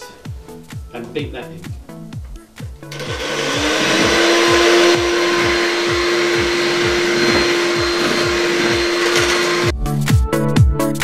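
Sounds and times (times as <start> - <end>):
electric mixer whirring: 2.9 - 9.7.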